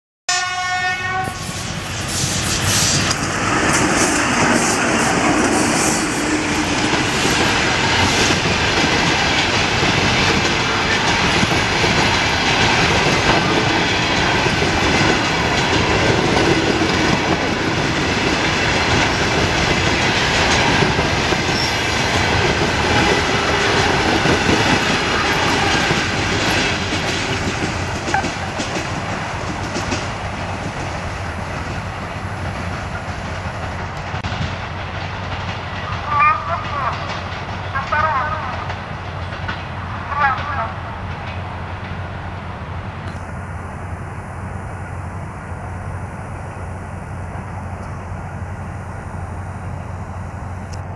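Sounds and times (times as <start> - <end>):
locomotive horn blast: 0.3 - 1.5, 21.5 - 26.2, 35.9 - 37.1
train rolling past: 0.3 - 50.9
wheels clacking over rail joints: 6.2 - 31.8.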